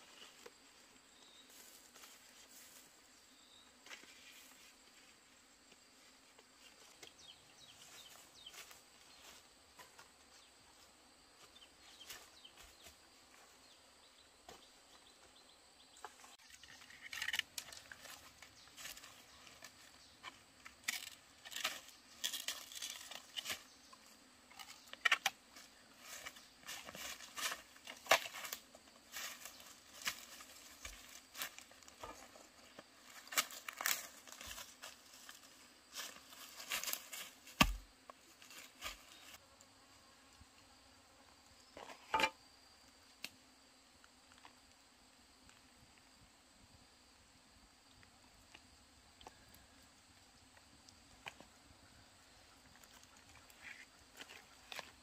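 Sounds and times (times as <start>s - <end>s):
bamboo pole being handled: 3.8s - 10.4s, 16.0s - 39.4s, 41.8s - 42.4s
dry leaves crackling and rustling: 33.0s - 37.7s.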